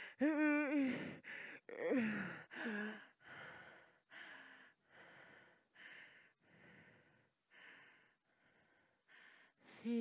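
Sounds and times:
woman gasping breaths: 0:00.0 - 0:10.0
woman moaning: 0:00.2 - 0:01.0, 0:01.7 - 0:03.0.

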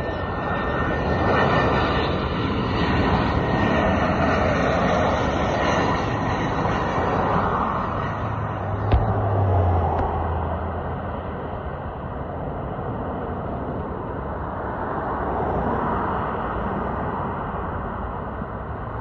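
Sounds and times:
highway traffic noise: 0:00.0 - 0:19.0
low hum: 0:01.7 - 0:15.1.

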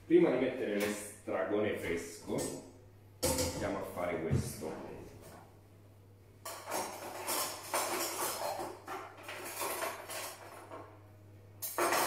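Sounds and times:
utensils scraping and clinking cookware: 0:06.4 - 0:10.8.

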